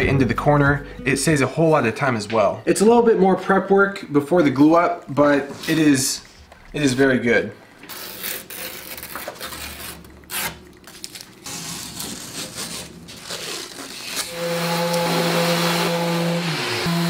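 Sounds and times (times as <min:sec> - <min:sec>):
tape ripping and crackling: 0:07.8 - 0:15.0.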